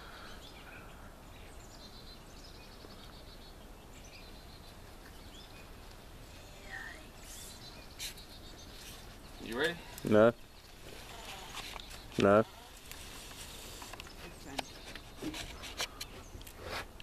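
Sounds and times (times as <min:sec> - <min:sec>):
quiet outdoor background noise: 0:00.0 - 0:17.0
faint bird chirps: 0:00.1 - 0:12.7.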